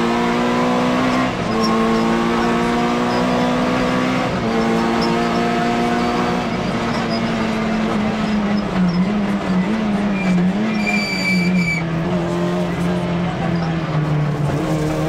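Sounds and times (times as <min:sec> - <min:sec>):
rally car engine revving: 0:00.0 - 0:15.0
thin high squeal: 0:10.2 - 0:11.8.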